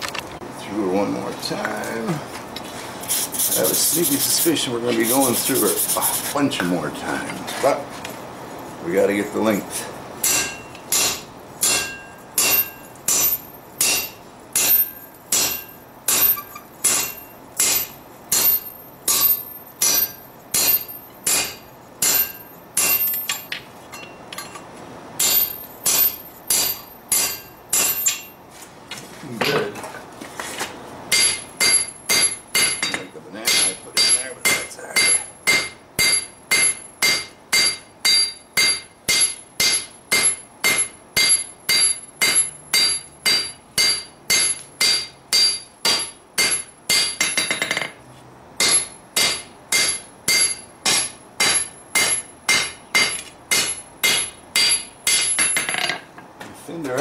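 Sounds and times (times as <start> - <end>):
hammer striking steel on anvil: 10.2 - 24.6, 25.2 - 28.4, 31.1 - 48.0, 48.6 - 56.0.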